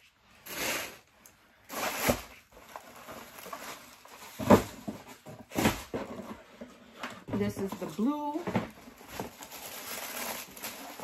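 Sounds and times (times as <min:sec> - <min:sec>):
packaging rustle: 0:01.7 - 0:06.4, 0:07.6 - 0:11.0.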